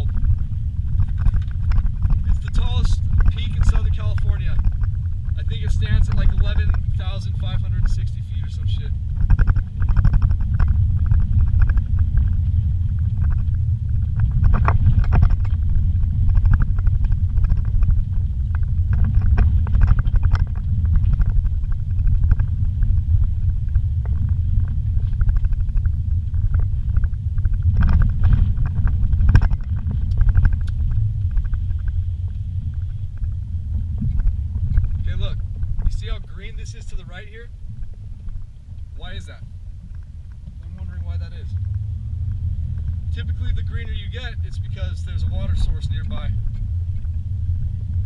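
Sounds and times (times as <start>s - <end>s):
vehicle knocks and rattles: 0.0s - 37.0s
engine and tyres rumbling: 0.0s - 48.0s.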